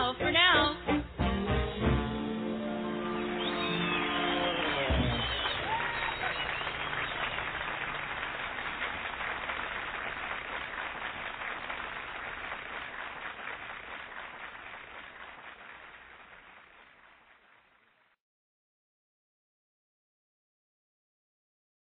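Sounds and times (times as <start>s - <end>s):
audience applause: 2.9s - 18.1s.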